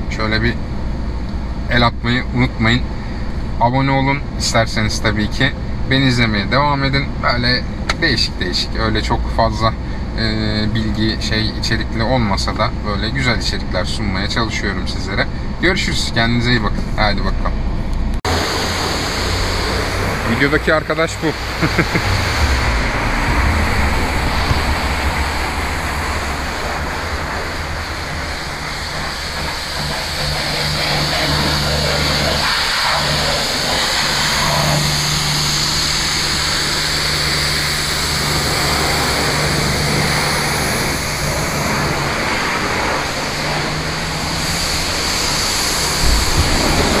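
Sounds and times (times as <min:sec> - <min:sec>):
car engine idling: 0:17.8 - 0:47.0.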